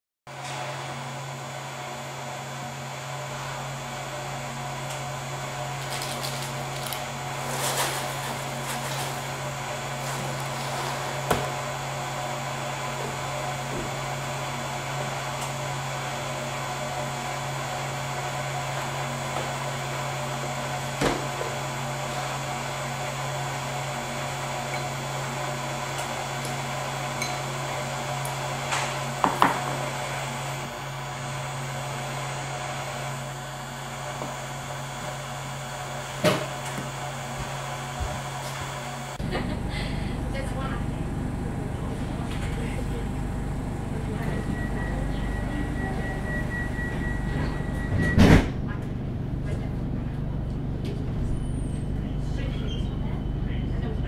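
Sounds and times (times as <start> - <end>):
steady low hum: 20.2 - 54.0.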